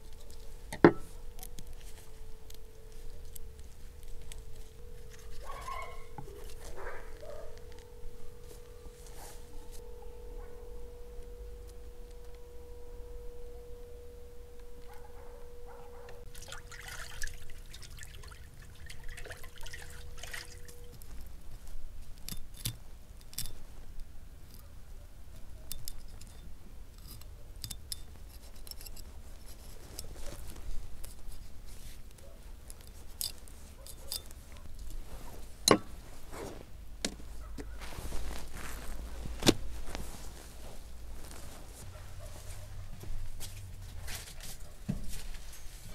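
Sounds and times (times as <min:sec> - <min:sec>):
steady tone: 0:00.0 - 0:16.3
wet scraping and squelching: 0:16.3 - 0:21.0.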